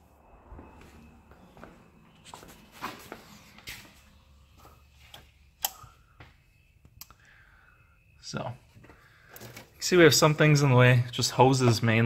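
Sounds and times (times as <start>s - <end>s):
faint footsteps: 0.4s - 5.4s.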